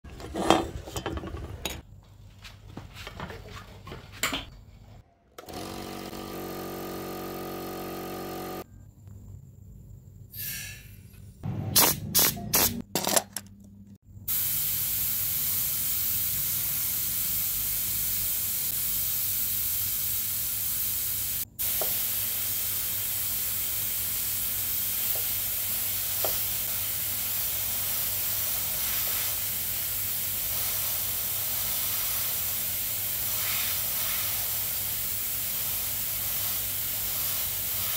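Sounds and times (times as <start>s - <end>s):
air compressor humming: 5.4s - 8.7s
sandblasting gun hissing: 14.3s - 37.9s.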